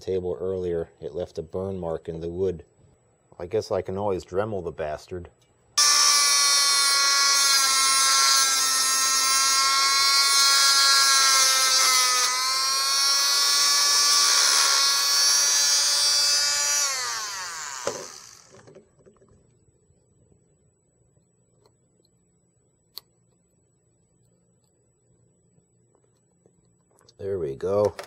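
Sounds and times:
rotary tool high-pitched whine: 5.8s - 18.8s
rotary tool winding down: 5.8s - 18.8s.

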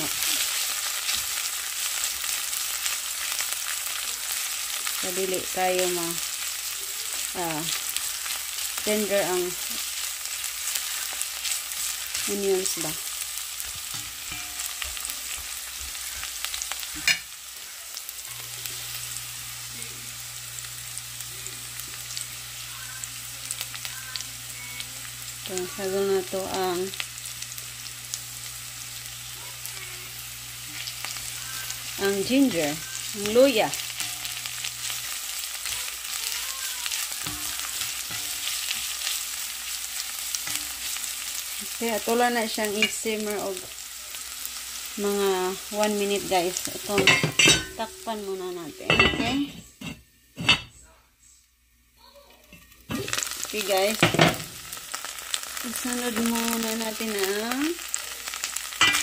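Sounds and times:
onions sizzling in oil: 0.0s - 50.7s, 52.0s - 59.0s
spatula stirring in a pot: 6.2s - 17.3s, 30.7s - 41.8s.

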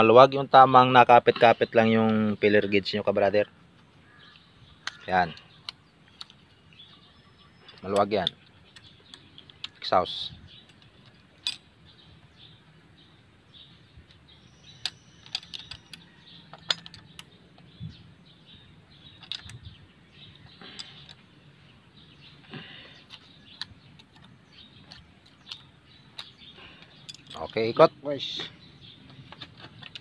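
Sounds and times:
hand tools clicking on metal: 22.4s - 27.8s, 29.1s - 30.0s.

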